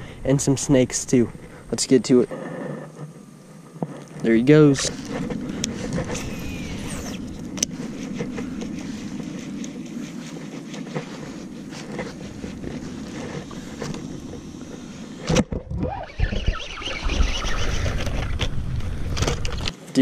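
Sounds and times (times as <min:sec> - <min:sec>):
fishing reel cranking: 0:05.9 - 0:07.3, 0:15.9 - 0:18.5.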